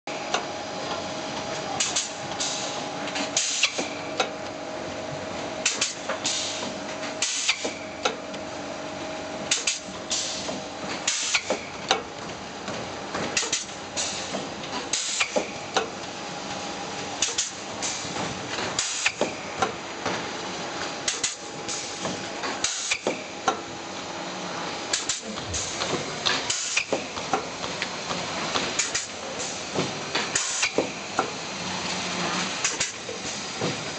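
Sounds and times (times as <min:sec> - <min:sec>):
pneumatic machine knocks: 0:14.3 - 0:15.6, 0:18.2 - 0:20.2, 0:21.1 - 0:23.6, 0:24.9 - 0:27.5, 0:29.7 - 0:31.3.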